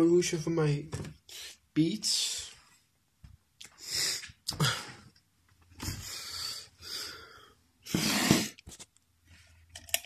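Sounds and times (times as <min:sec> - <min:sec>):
person breathing noisily: 0:05.8 - 0:08.4.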